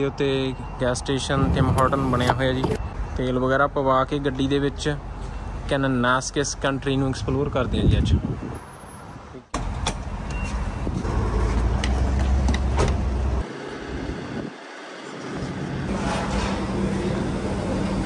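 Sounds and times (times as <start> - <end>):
low rumble of vehicles: 0.0 - 18.0.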